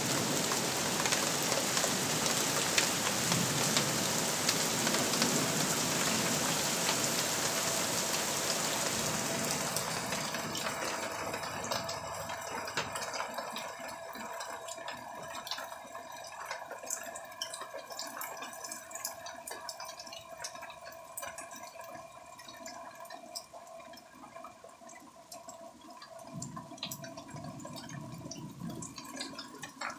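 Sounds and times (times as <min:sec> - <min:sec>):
heavy rain falling: 0:00.0 - 0:13.4
water dripping: 0:00.0 - 0:29.9.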